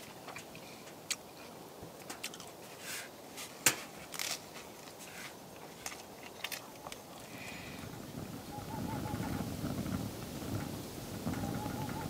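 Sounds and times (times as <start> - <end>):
faint clicks and crackles: 3.6 - 8.5.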